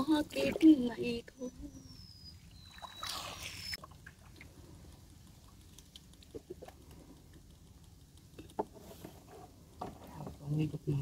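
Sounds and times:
faint water dripping: 0:02.4 - 0:08.6
water splash: 0:02.6 - 0:04.5.

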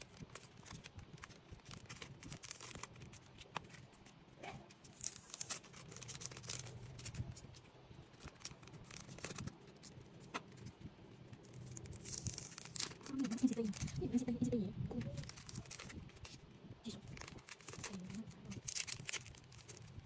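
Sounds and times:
plastic sleeves clicking and rustling: 0:00.0 - 0:14.0
low steady hum: 0:00.0 - 0:20.0.

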